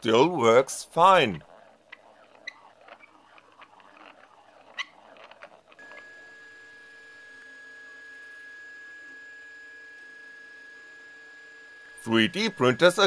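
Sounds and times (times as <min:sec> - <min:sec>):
low hum of printer: 0:00.1 - 0:13.0
high whine: 0:11.7 - 0:13.0.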